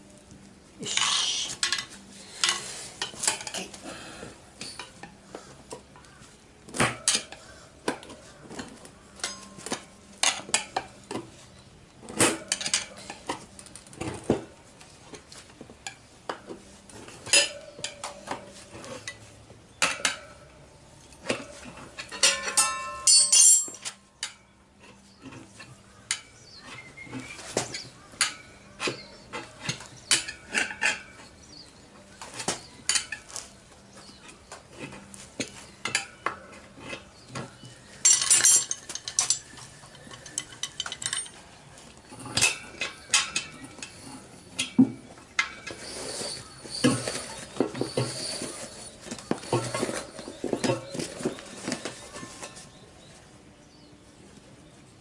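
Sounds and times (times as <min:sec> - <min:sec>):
tyre levers clinking on wheel rim: 0:04.6 - 0:11.4, 0:21.1 - 0:52.8.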